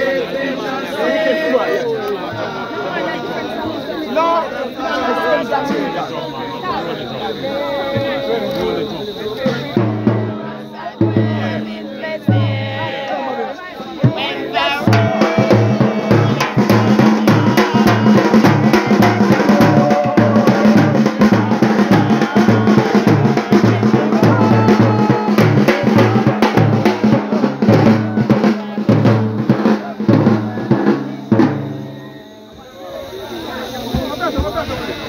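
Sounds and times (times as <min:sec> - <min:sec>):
drum-kit beat: 0:09.4 - 0:13.2, 0:13.9 - 0:32.2.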